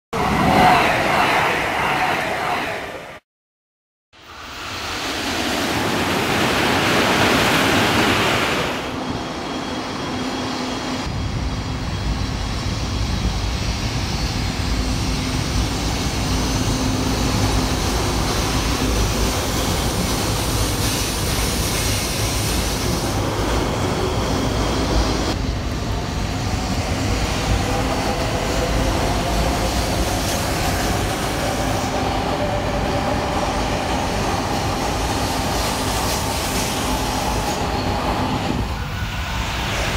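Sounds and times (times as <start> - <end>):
electric train rumbling: 0.2 - 3.2, 4.2 - 39.9.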